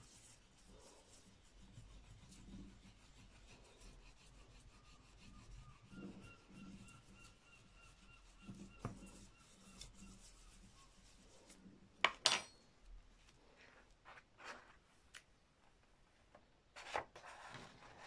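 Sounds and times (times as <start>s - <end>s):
spoon scraping over paper: 0.0s - 11.9s
paper rustling: 16.7s - 18.0s.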